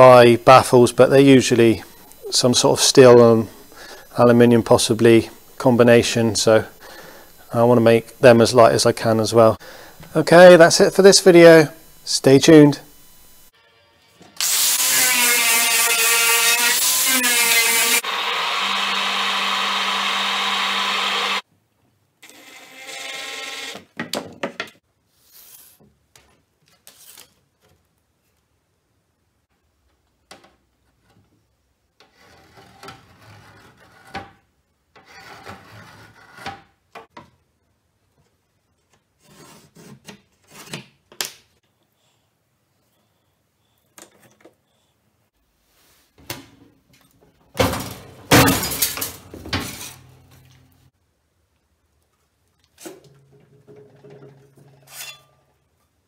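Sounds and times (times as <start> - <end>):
pillar drill humming: 1.0 - 13.5
workshop tools handling noises: 43.9 - 44.6, 46.2 - 50.8, 52.6 - 56.0.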